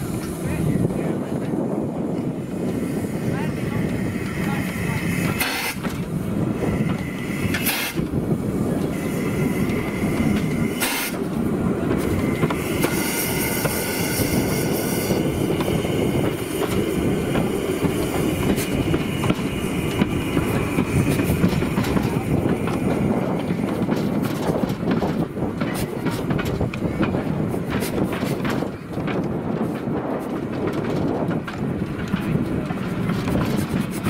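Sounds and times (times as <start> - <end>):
train wheels clattering on rails: 0.0 - 34.0
steam hissing: 2.4 - 23.9.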